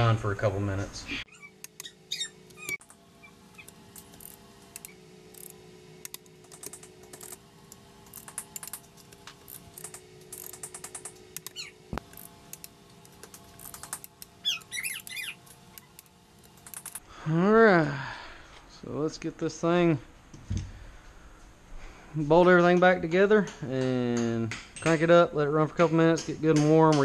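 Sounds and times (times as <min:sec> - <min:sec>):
brief squeaks: 0:01.3 - 0:02.8
torque wrench ratcheting clicks: 0:08.1 - 0:08.8, 0:09.4 - 0:17.0.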